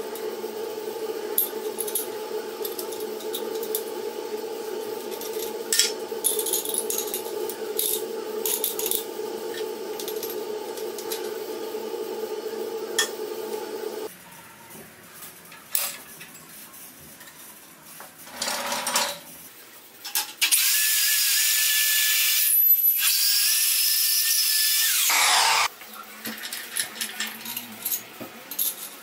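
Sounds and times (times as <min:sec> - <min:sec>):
steady hum: 0:00.0 - 0:14.1.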